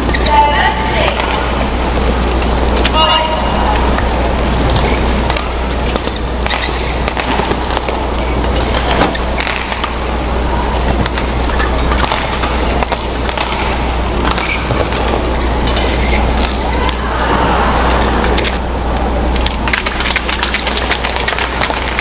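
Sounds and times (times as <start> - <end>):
arena crowd noise: 0.0 - 22.0
low hum: 0.0 - 22.0
rackets hitting shuttlecock: 4.7 - 17.0.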